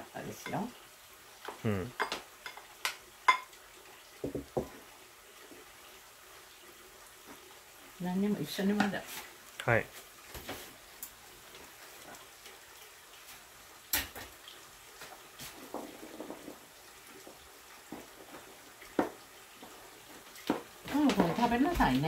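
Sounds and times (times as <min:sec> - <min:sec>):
dishes and utensils knocking: 0:04.2 - 0:04.7.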